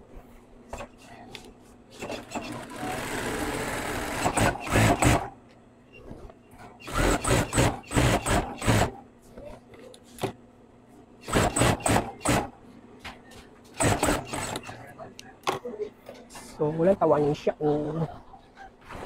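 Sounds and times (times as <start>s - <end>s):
sewing machine stitching: 1.9s - 5.3s, 6.8s - 8.9s, 11.2s - 12.5s, 13.8s - 14.8s.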